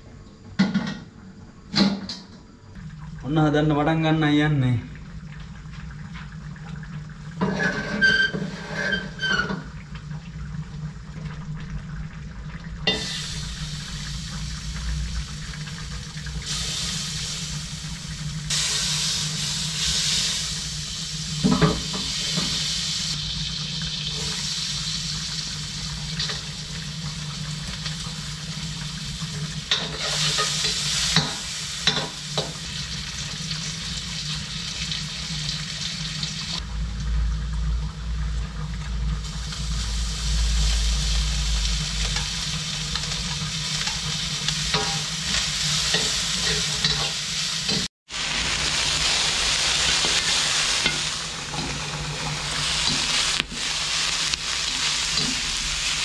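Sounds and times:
wok hissing and sizzling: 0:05.6 - 0:56.0.

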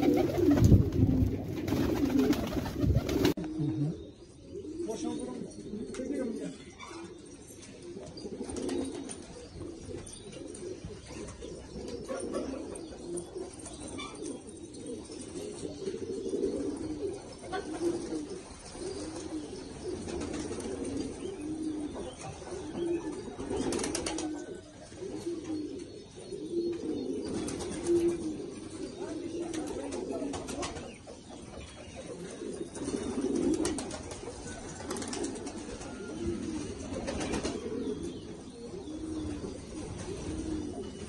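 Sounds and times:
wings fluttering: 0:00.0 - 0:03.4
pigeons cooing: 0:00.0 - 0:41.0.

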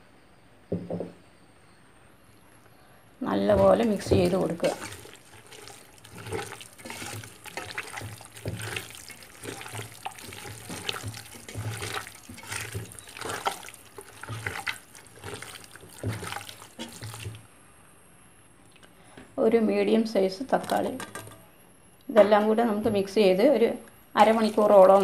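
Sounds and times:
wet stirring in a bowl: 0:03.5 - 0:17.5, 0:24.2 - 0:25.0.

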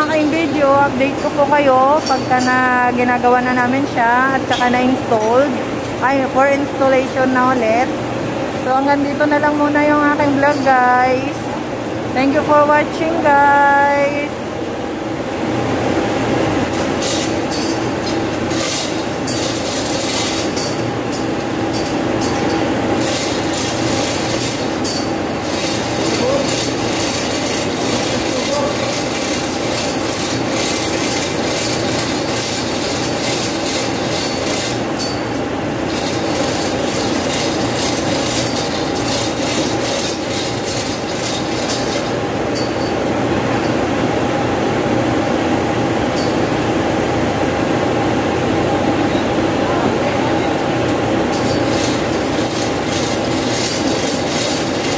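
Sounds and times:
mechanical hum of machinery: 0:00.0 - 0:54.9
hoist chain rattling and clicking: 0:16.8 - 0:42.9, 0:51.3 - 0:54.9.

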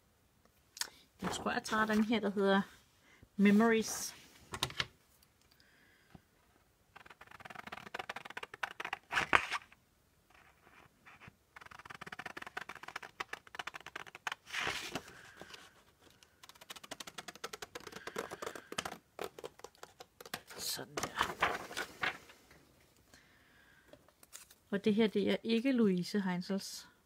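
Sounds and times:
paper rustling: 0:01.2 - 0:02.2, 0:07.0 - 0:09.7, 0:10.3 - 0:22.4
paper scrape: 0:10.3 - 0:15.7.

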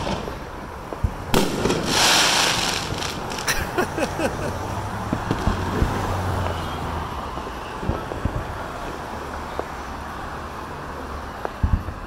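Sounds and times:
distant fireworks booms: 0:00.0 - 0:03.8, 0:05.1 - 0:06.6, 0:07.3 - 0:09.7
city street traffic rumble: 0:00.0 - 0:12.0.

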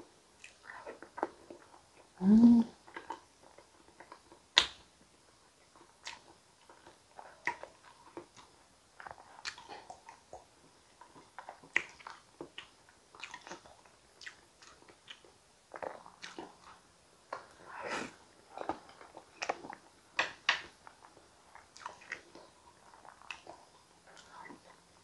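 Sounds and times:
soft chewing and mouth smacks: 0:00.4 - 0:25.0
person humming: 0:02.2 - 0:02.8.

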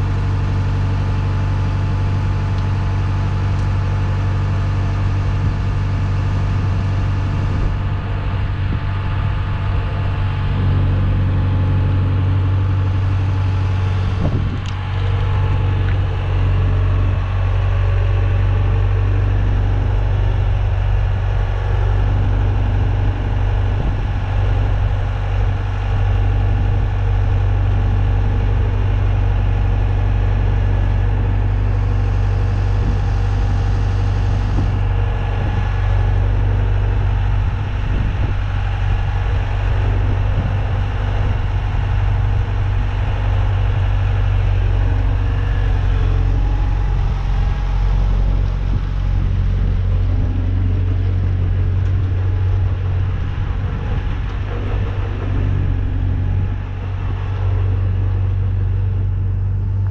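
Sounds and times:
asphalt paver diesel engine: 0:00.0 - 0:59.9.

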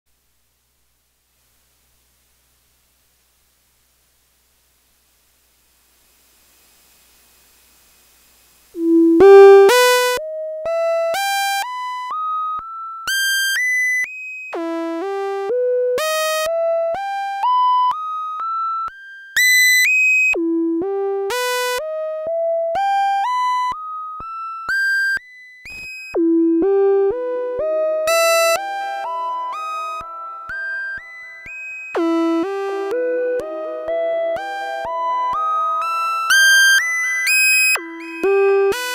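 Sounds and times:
low held synth tone: 0:08.8 - 0:10.3
synthesizer sequence of bright notes: 0:08.8 - 0:10.3.

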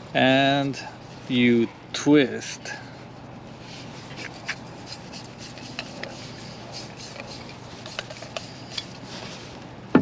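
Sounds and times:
metal threads rubbing: 0:03.8 - 0:09.2.

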